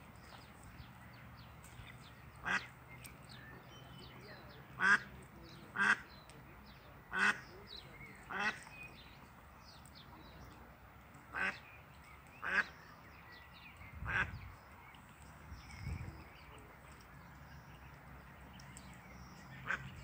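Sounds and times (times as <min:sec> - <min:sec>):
ducklings peeping: 0:00.3 - 0:10.4, 0:11.3 - 0:20.0
duck quacking: 0:02.4 - 0:02.7, 0:04.8 - 0:05.0, 0:07.1 - 0:07.4, 0:08.3 - 0:08.6.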